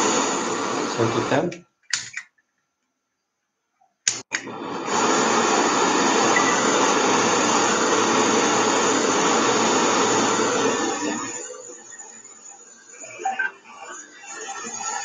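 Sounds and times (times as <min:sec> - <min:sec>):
blowtorch flame hissing: 0:00.0 - 0:01.4, 0:04.2 - 0:11.6.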